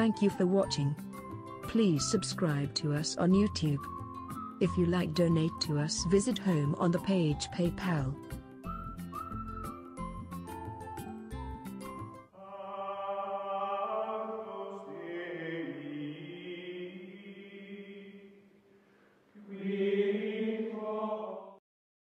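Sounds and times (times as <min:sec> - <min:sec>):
choir holding long chords: 0:12.4 - 0:18.3, 0:19.4 - 0:21.6.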